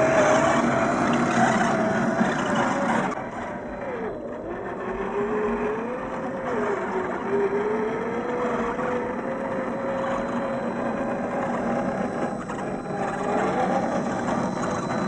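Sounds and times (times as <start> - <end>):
electric motor and gears whining: 0.0 - 15.0.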